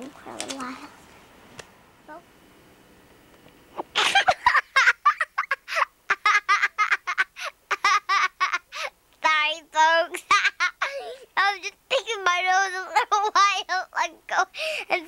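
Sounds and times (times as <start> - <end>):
girl giggling: 3.8 - 8.9, 10.1 - 11.3.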